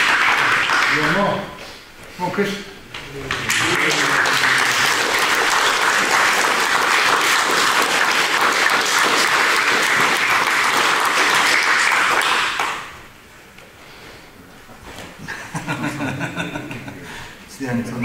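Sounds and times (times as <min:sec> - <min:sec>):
group of people clapping: 0:00.0 - 0:01.4, 0:03.2 - 0:13.1.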